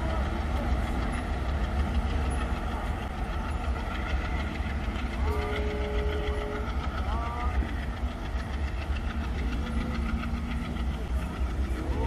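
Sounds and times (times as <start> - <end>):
passenger train rumbling: 0.0 - 12.0.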